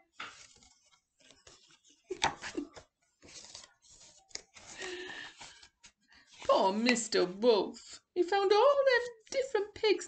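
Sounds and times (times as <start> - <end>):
book pages rustling: 0.0 - 7.3.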